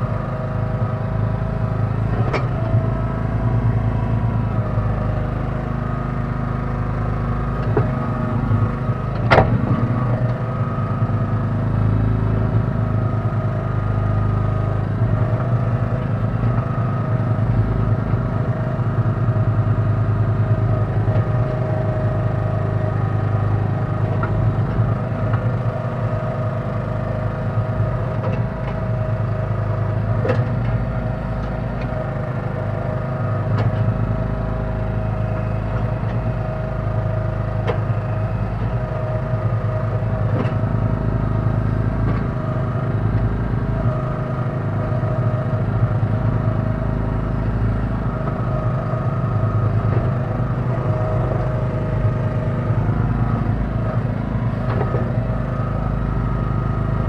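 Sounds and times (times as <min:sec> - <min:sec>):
sharp knocks: 0:09.2 - 0:10.1.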